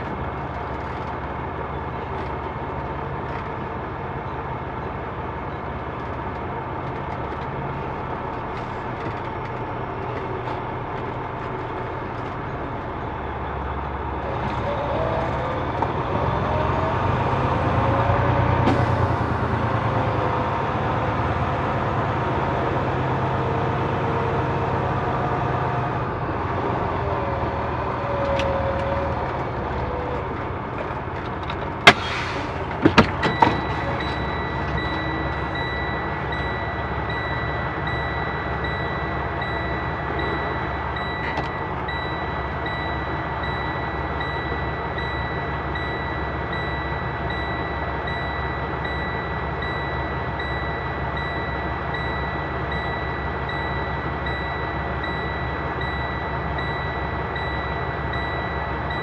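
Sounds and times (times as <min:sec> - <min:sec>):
diesel engine idling: 0:00.0 - 0:59.0
reverse alarm beeping: 0:32.2 - 0:59.0.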